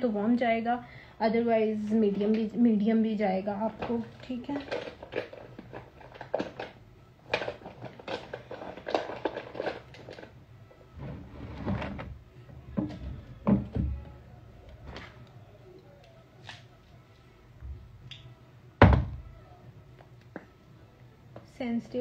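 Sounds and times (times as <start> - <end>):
small objects knocking and clattering: 3.8 - 10.3.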